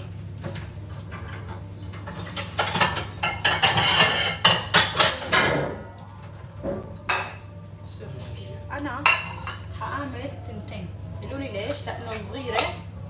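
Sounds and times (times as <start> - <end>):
plates and dishes clattering: 0.4 - 7.6, 9.0 - 9.7.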